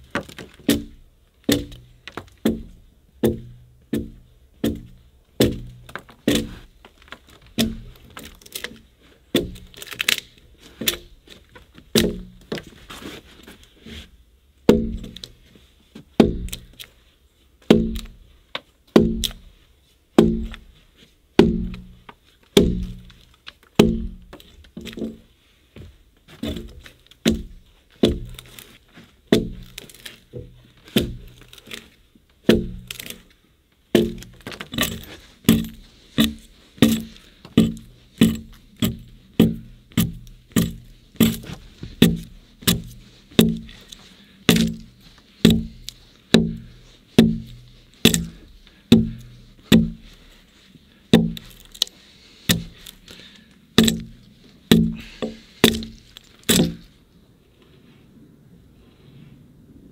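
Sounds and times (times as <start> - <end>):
axe chopping into log: 0.2 - 6.6, 7.6 - 8.7, 9.3 - 10.2, 11.9 - 12.4, 14.7 - 15.2, 16.2 - 16.7, 17.7 - 18.2, 19.0 - 19.5, 20.2 - 20.6, 21.4 - 21.9, 22.6 - 23.2, 23.8 - 24.3, 26.4 - 28.7, 29.3 - 33.2, 33.9 - 50.1, 51.1 - 51.9, 52.5 - 53.0, 53.8 - 56.9.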